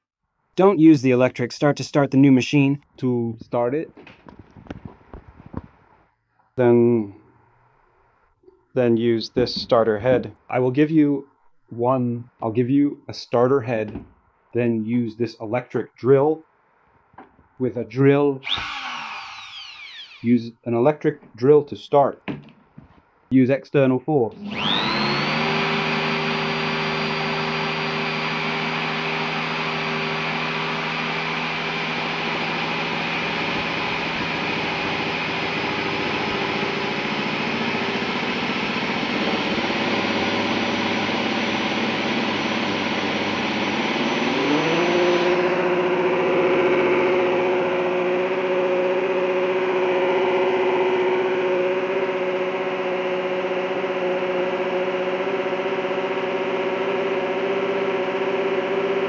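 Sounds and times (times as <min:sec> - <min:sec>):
electric drill motor whining: 0:18.4 - 0:20.3, 0:24.4 - 0:59.0.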